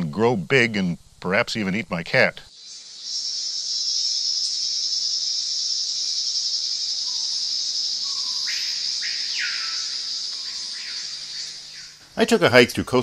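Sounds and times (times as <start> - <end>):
low-pitched insect calls: 2.1 - 13.0
insects buzzing drone: 2.5 - 12.5.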